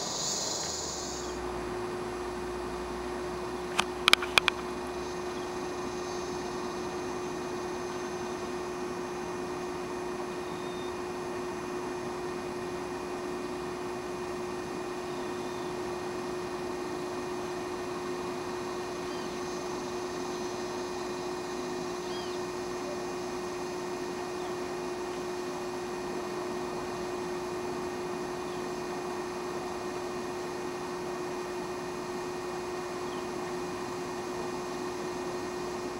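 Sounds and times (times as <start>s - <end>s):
even hiss: 0.0s - 1.5s, 4.8s - 10.0s
steady low hum: 0.0s - 35.9s.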